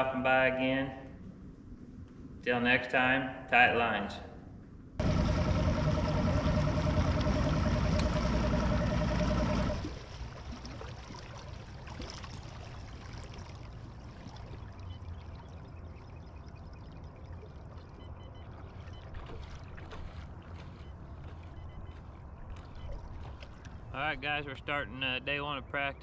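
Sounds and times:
steady low rumble: 0:04.4 - 0:10.6
water lapping against boat hull: 0:05.0 - 0:23.9.

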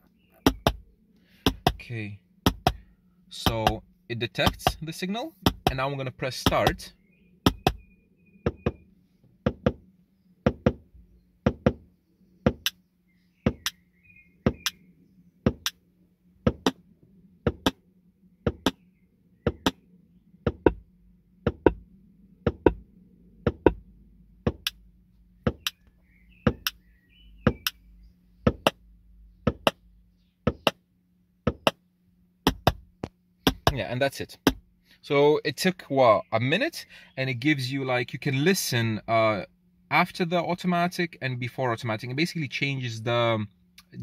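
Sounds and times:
faint steady hum: 0:00.0 - 0:44.0
sharp clicks through speakers: 0:00.3 - 0:00.8, 0:01.4 - 0:07.8, 0:12.5 - 0:12.8, 0:15.5 - 0:15.8, 0:17.5 - 0:17.8, 0:18.5 - 0:18.8, 0:19.4 - 0:19.8, 0:20.5 - 0:20.9, 0:21.5 - 0:21.8, 0:22.5 - 0:22.8, 0:23.5 - 0:23.8, 0:24.5 - 0:24.8, 0:25.4 - 0:26.8, 0:27.4 - 0:27.8, 0:28.5 - 0:28.8, 0:29.4 - 0:29.8, 0:30.4 - 0:30.8, 0:31.4 - 0:31.8, 0:32.4 - 0:34.6, 0:43.8 - 0:44.0.

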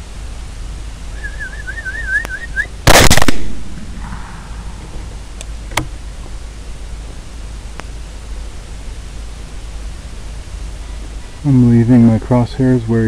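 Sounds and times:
person whistling a trill: 0:01.2 - 0:02.7
rifle shot with echo: 0:02.9 - 0:05.9
sharp click: 0:04.9 - 0:05.9.

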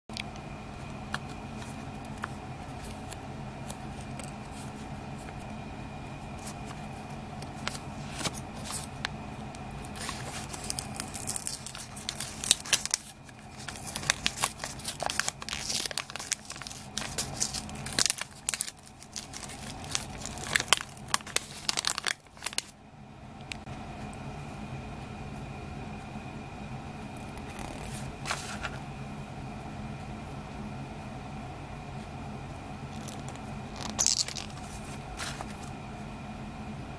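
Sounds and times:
steady low hum: 0:00.1 - 0:36.9
wrapper crinkling and tearing: 0:09.8 - 0:22.7, 0:32.9 - 0:35.6.

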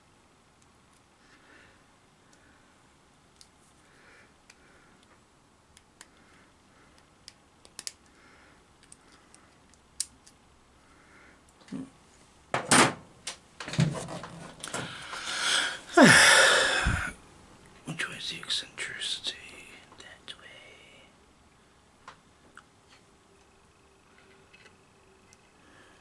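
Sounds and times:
pliers clicking metal clips: 0:07.2 - 0:08.0
tools knocking and clattering: 0:13.6 - 0:14.8.

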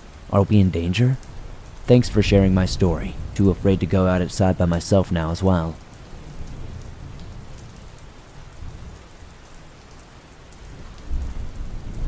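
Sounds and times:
steady rain falling: 0:00.0 - 0:12.0
distant thunder rumble: 0:01.2 - 0:09.0, 0:10.7 - 0:12.0.

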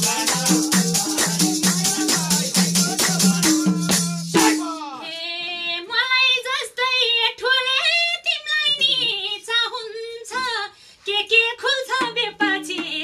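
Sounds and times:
woman singing folk verse: 0:04.5 - 0:13.0.

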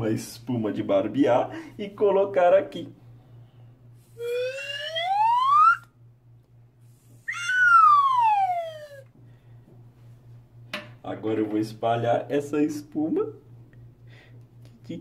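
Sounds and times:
slide whistle gliding: 0:04.0 - 0:05.9, 0:07.2 - 0:09.1.

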